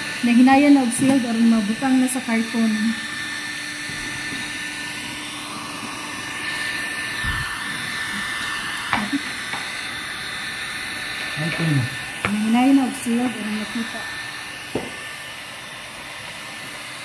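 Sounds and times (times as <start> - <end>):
heat gun fan whining: 0.0 - 17.0.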